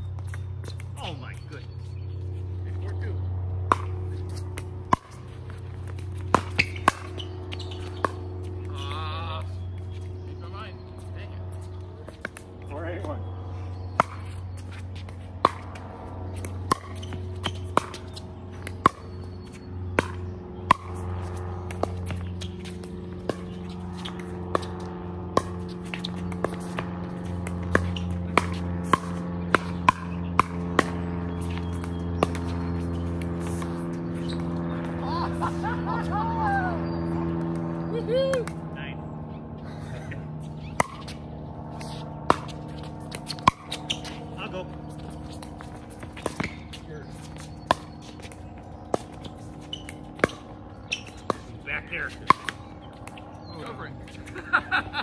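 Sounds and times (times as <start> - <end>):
steady low hum: 0.0 - 55.0
paddles hitting plastic ball: 19.9 - 35.0.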